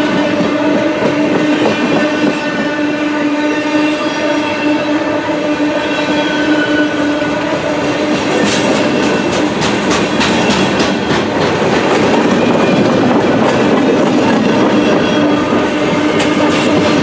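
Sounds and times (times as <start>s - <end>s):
train rumbling: 0.0s - 17.0s
wheels clattering over rail joints: 8.0s - 14.2s.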